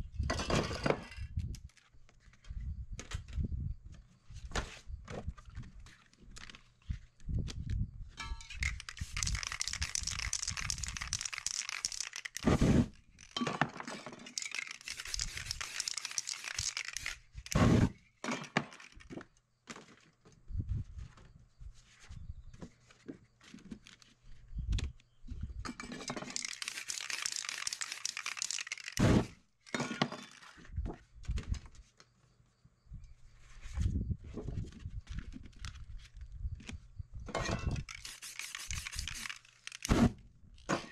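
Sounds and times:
paper crinkling: 0:08.6 - 0:12.6, 0:14.3 - 0:17.6, 0:26.2 - 0:29.0, 0:37.8 - 0:39.9
spray-paint can hissing: 0:08.6 - 0:12.6, 0:14.4 - 0:17.2, 0:26.3 - 0:29.2, 0:37.8 - 0:39.9.

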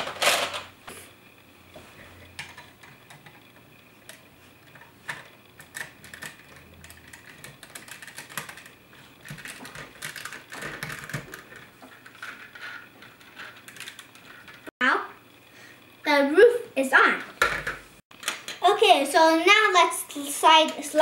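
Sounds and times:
plastic toy bricks clicking: 0:05.1 - 0:12.8.

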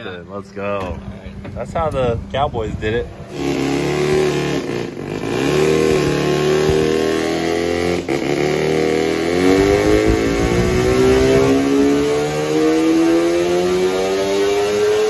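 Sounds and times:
turbocharged engine revving: 0:03.3 - 0:15.0.

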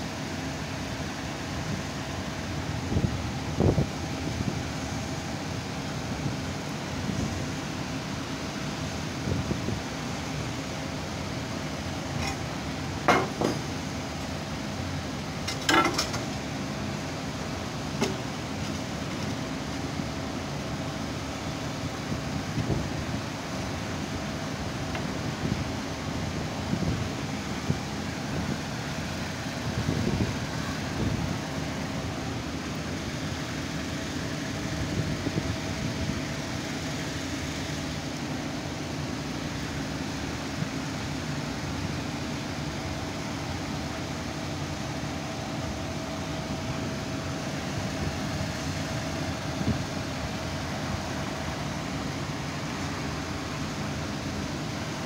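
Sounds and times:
workshop hum: 0:00.0 - 0:55.0
steel parts clanking on plate: 0:15.5 - 0:16.2.

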